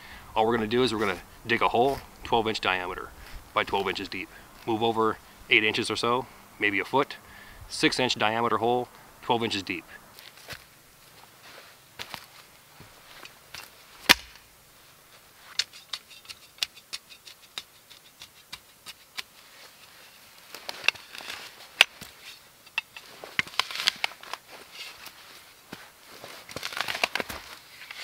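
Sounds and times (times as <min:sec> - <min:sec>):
shovel scraping into dry dirt: 0:15.4 - 0:28.0.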